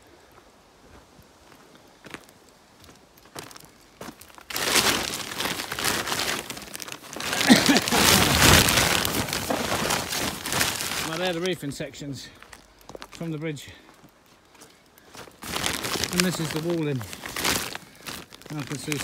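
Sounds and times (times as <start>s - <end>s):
plastic bag crinkling: 3.6s - 13.6s, 15.1s - 19.0s.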